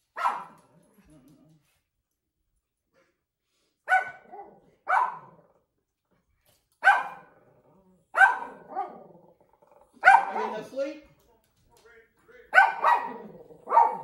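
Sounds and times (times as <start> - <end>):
dog barking: 0.1 - 0.6, 3.8 - 5.4, 6.8 - 7.4, 8.1 - 9.1, 10.0 - 10.8, 12.5 - 14.0.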